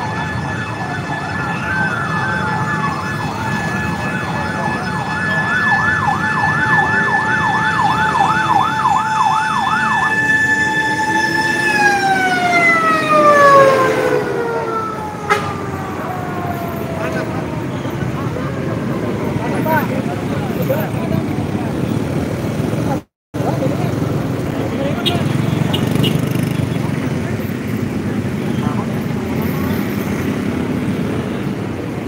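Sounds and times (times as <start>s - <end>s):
fire engine siren wail: 0.0s - 22.4s
fire engine siren yelp: 0.0s - 22.4s
street traffic: 0.0s - 32.0s.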